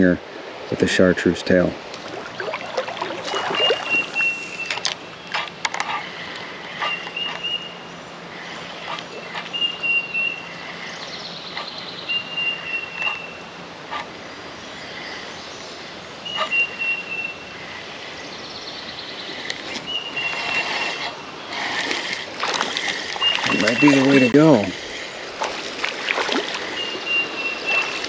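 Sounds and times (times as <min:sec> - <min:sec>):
birds warbling: 0:02.0 - 0:28.0
bird whistled note: 0:03.3 - 0:04.8, 0:12.1 - 0:13.4.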